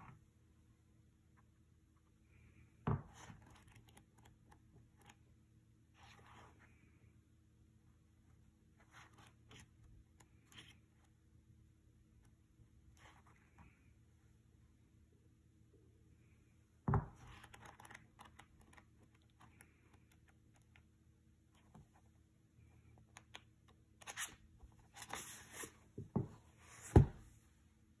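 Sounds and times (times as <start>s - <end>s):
book pages rustling: 8.8s - 11.1s, 24.0s - 27.4s
book thumping: 25.2s - 27.3s.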